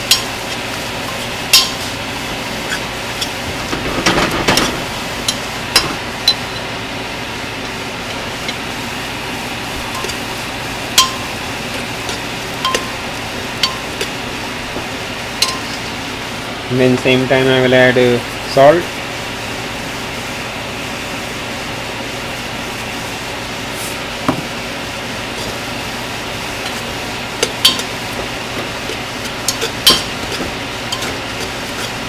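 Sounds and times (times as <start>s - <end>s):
masala sizzling in a pot: 0.0s - 3.9s, 4.8s - 16.6s, 19.1s - 32.0s
metal spoon clinking on pot: 11.0s - 11.3s, 12.1s - 13.0s, 13.6s - 14.1s, 27.4s - 27.9s, 29.5s - 31.2s.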